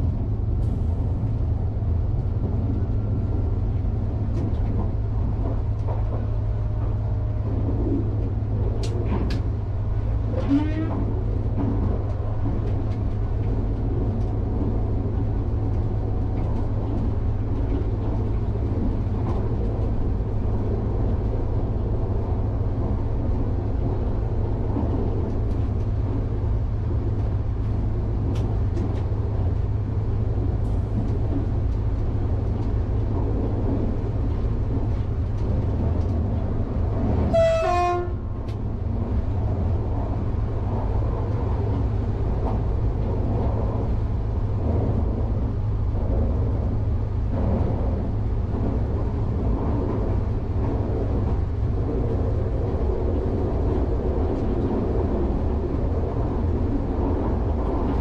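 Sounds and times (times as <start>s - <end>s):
train rolling rumble: 0.0s - 58.0s
train horn toot: 10.3s - 11.1s, 37.3s - 38.3s.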